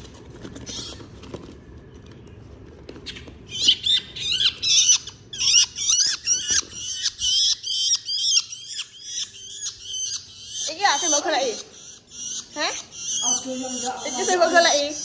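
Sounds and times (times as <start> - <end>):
shrike chattering calls: 3.5 - 15.0.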